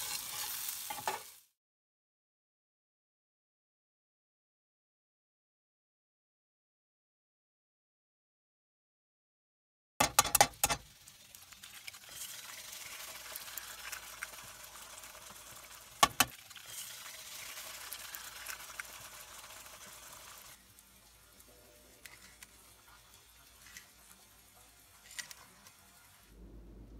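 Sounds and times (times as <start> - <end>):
food sizzling in a skillet: 0.0 - 1.6, 10.2 - 26.4.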